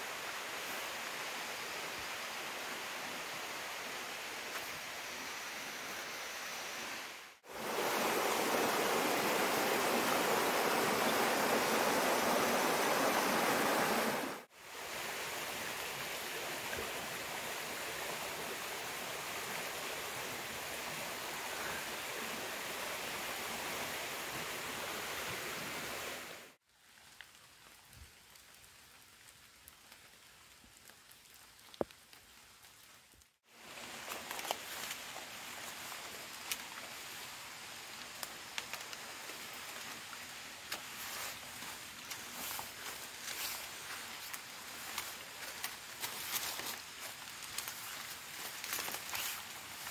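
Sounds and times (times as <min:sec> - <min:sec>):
running water rushing: 0:00.0 - 0:26.6, 0:33.5 - 0:49.9
faint rustles and ticks: 0:38.0 - 0:49.9.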